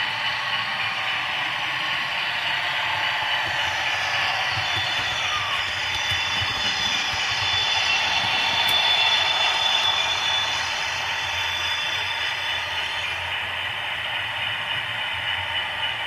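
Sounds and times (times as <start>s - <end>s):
model locomotive engine idle sound: 0.0s - 16.0s
model train clattering on track: 3.4s - 13.3s.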